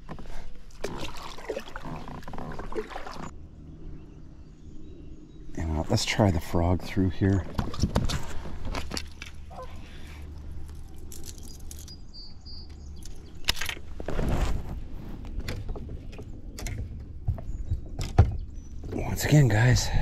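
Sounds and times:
bird chirping: 0:03.2 - 0:06.5, 0:11.2 - 0:13.7, 0:16.0 - 0:19.4.

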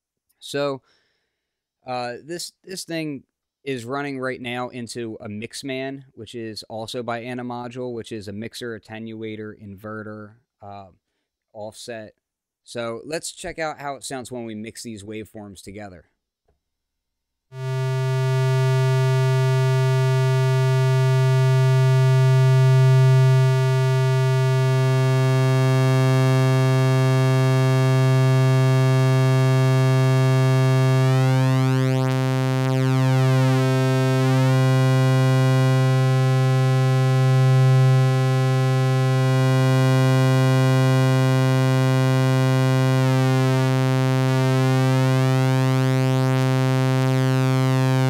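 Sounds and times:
synthesizer low steady note: 0:17.5 - 0:48.0.

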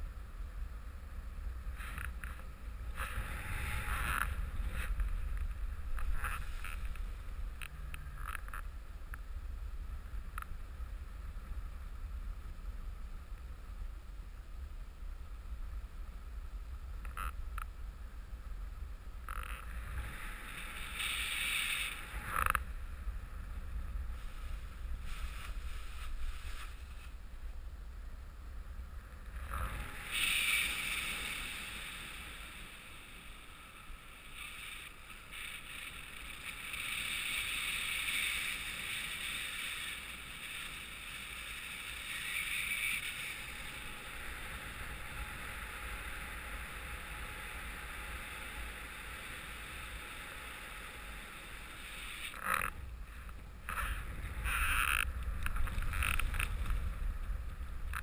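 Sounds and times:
wind rushing over microphone: 0:00.0 - 0:13.9, 0:51.7 - 0:58.0
low rumble: 0:00.0 - 0:30.2, 0:52.7 - 0:58.0.

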